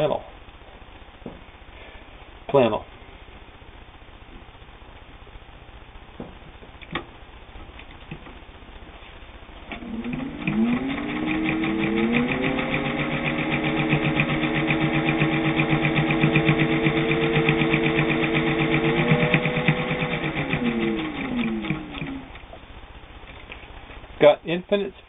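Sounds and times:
needle stitching ticking: 9.7s - 22.5s
sewing machine motor whirring: 9.7s - 22.5s.

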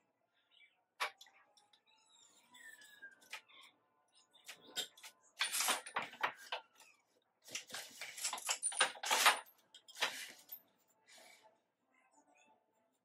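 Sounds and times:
loom clicks and knocks: 7.5s - 10.5s.

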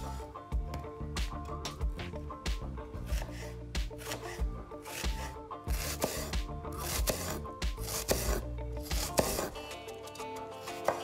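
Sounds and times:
background music held notes: 0.0s - 11.0s
knife slicing onion: 2.9s - 11.0s.

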